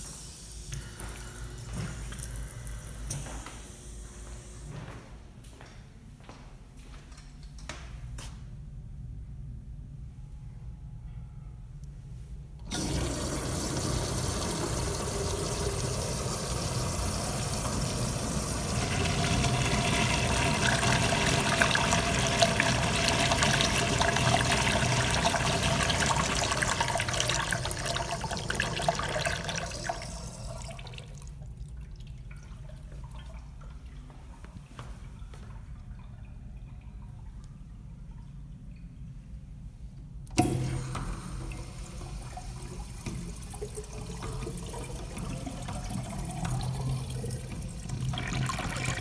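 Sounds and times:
urinal flushing: 0:12.6 - 0:38.4, 0:40.3 - 0:49.0
faint dripping: 0:30.6 - 0:40.1.

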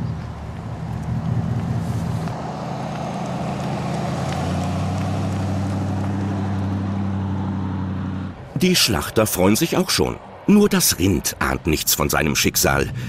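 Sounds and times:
truck engine driving by: 0:00.0 - 0:11.7.

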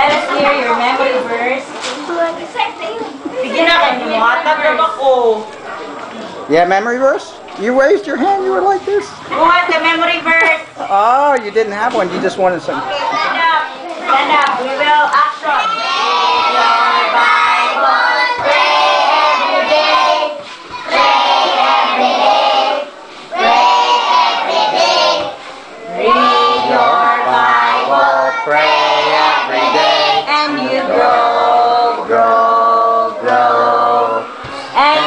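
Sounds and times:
children singing: 0:15.6 - 0:35.0.

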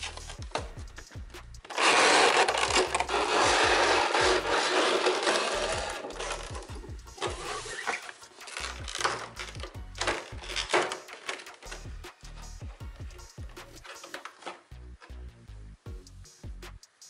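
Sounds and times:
background music with low bass: 0:00.0 - 0:17.0
cardboard box scraping rustle: 0:01.7 - 0:11.8.

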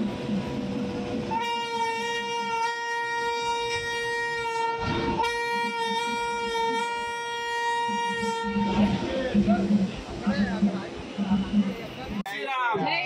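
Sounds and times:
train horn blast: 0:01.3 - 0:09.1.

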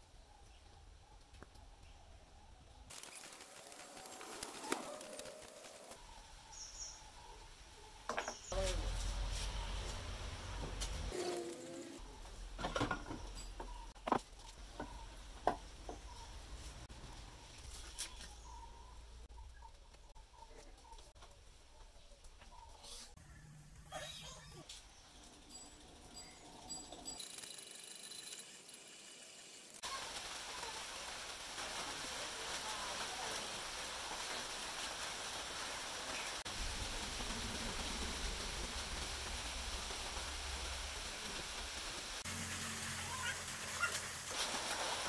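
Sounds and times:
metallic knocks and clinks: 0:12.6 - 0:13.9, 0:25.3 - 0:28.7
steady hiss: 0:28.6 - 0:45.0.

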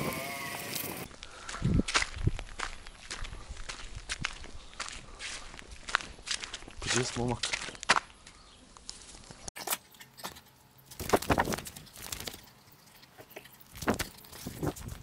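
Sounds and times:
footsteps on gravel and grass: 0:00.0 - 0:09.5
rustles: 0:10.8 - 0:15.0.

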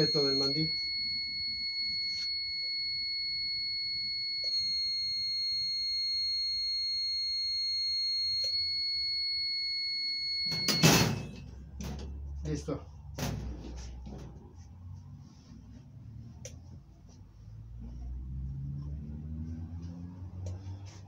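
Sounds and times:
high-pitched timer buzzer tone: 0:00.0 - 0:11.2
loud clunk: 0:10.5 - 0:12.0.

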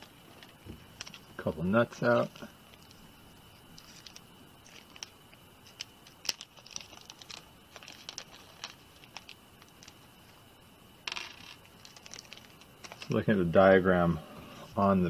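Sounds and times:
plastic bag crinkling: 0:03.7 - 0:10.0, 0:11.2 - 0:13.2.

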